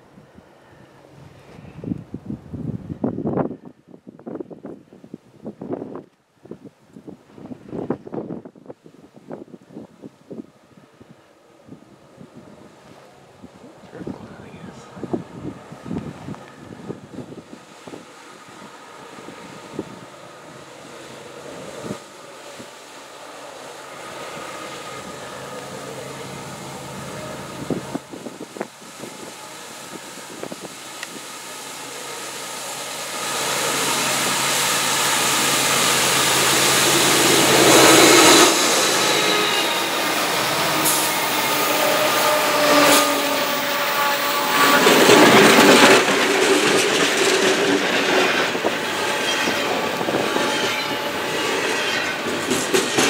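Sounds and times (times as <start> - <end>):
diesel locomotive engines running: 12.0 - 53.0
train wheels rolling on rails: 15.2 - 53.0.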